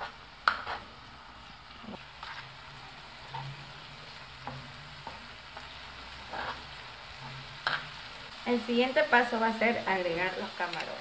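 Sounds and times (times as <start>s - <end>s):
metal spoon scraping a pan: 0.0s - 1.0s, 1.9s - 2.6s, 3.2s - 3.7s, 4.4s - 8.0s
garlic and onion sizzling in butter: 0.0s - 11.0s.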